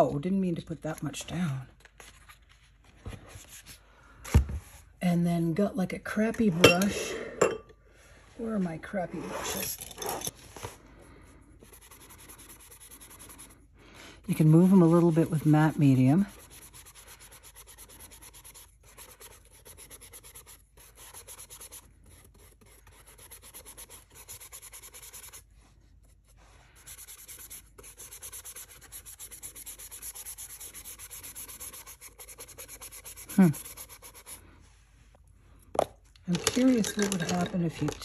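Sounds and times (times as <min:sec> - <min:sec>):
paintbrush rubbing on paper: 0:08.4 - 0:35.1.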